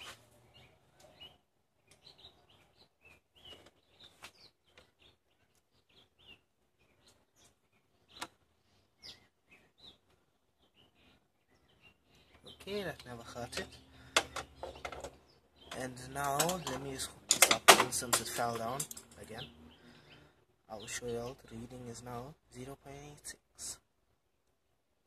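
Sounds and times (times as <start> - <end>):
faint bird chirps: 0.0 - 17.1.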